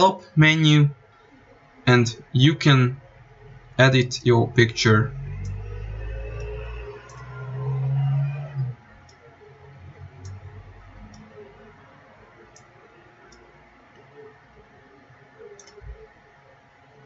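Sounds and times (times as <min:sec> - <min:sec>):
faint steady hum: 0:00.0 - 0:17.0
computer mouse clicking: 0:06.3 - 0:07.6, 0:08.4 - 0:09.3, 0:10.2 - 0:11.4, 0:12.5 - 0:12.7, 0:15.4 - 0:16.1.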